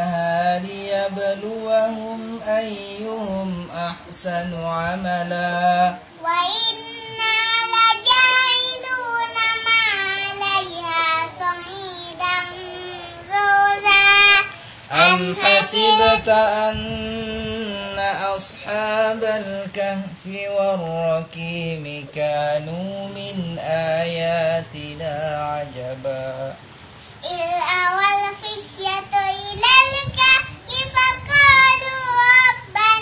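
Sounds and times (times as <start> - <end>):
man chanting: 0.0 - 6.1, 14.9 - 26.6
boy chanting recitation: 0.0 - 33.0.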